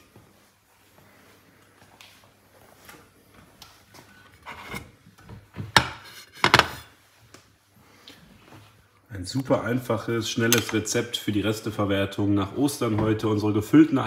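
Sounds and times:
plate rubbing on cooktop: 0:04.3 - 0:05.0, 0:05.7 - 0:06.9.

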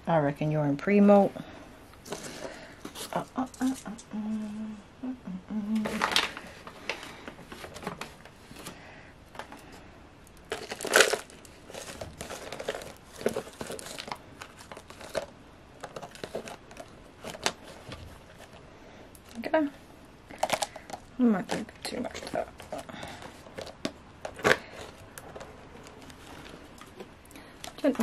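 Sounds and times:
plastic cup crinkling: 0:05.8 - 0:08.3, 0:10.3 - 0:18.6, 0:20.3 - 0:28.0.

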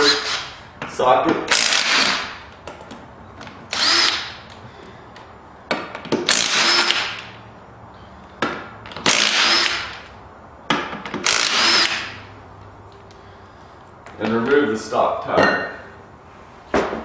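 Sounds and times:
impact driver whirring: 0:01.5 - 0:02.4, 0:03.7 - 0:04.4, 0:06.2 - 0:07.3, 0:09.0 - 0:10.1, 0:11.2 - 0:12.2.

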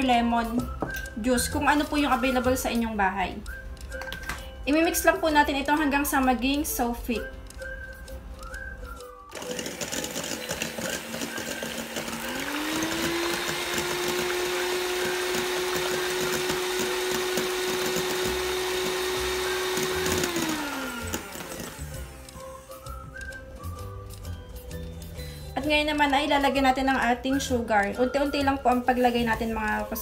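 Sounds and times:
electric hand mixer whipping: 0:09.3 - 0:24.3.

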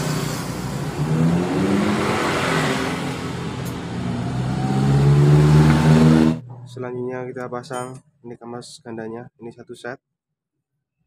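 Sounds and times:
vehicle engine accelerating: 0:00.0 - 0:06.8.

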